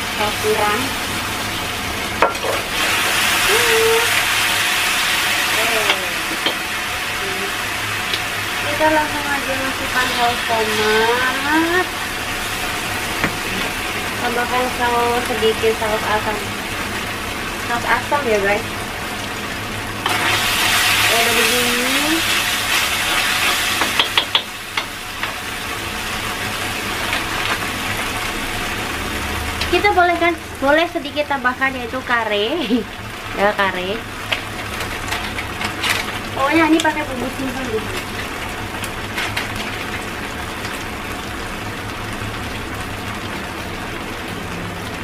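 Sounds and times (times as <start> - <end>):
sauce sizzling in wok: 0.0 - 45.0
spatula tapping wok: 5.8 - 6.6, 23.8 - 25.4.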